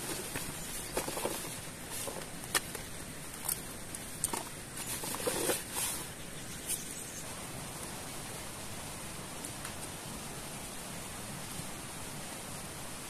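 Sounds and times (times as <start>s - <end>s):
rustling fabric: 0.0s - 2.4s, 4.3s - 6.2s
steady hiss: 0.0s - 13.0s.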